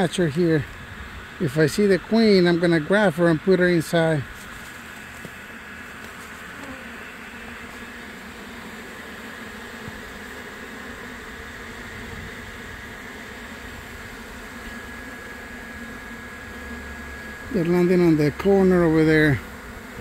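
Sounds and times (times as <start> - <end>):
bee swarm buzzing: 0.0 - 20.0.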